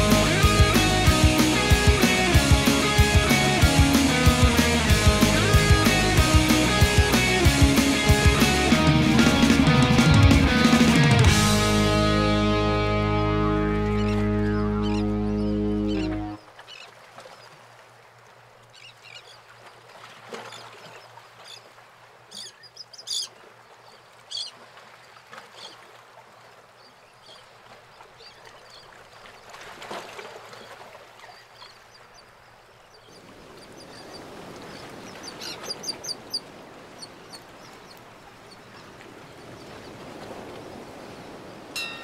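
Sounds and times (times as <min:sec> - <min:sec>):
birds chirping: 0:00.0 - 0:16.9, 0:22.3 - 0:24.6, 0:30.5 - 0:40.0.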